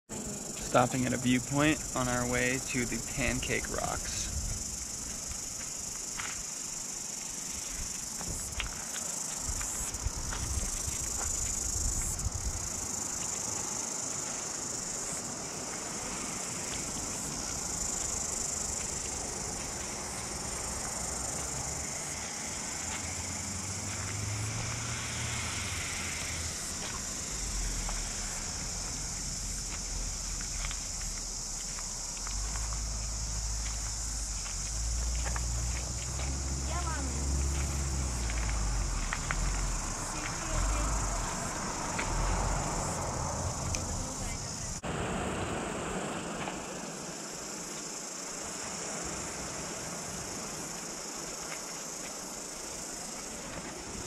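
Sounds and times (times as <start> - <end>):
insects chorus: 0.1 - 54.0
wind buffeting microphone: 3.8 - 4.8, 9.4 - 12.9.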